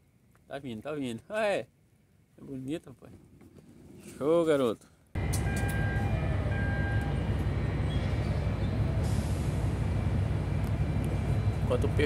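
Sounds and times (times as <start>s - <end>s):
low rumble of port machinery: 4.9s - 12.0s.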